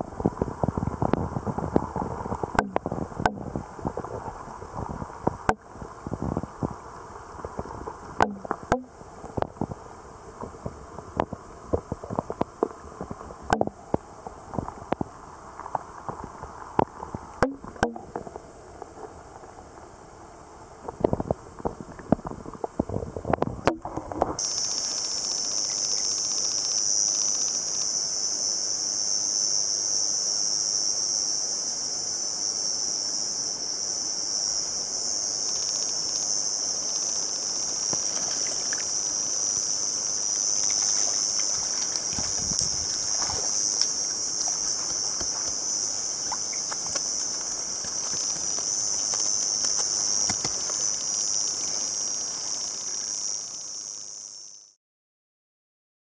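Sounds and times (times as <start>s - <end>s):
muffled underwater clicks and knocks: 0.2s - 6.8s, 7.4s - 9.8s, 10.4s - 19.2s, 20.8s - 24.4s, 40.7s - 50.9s
high-pitched insect chorus: 24.1s - 54.8s.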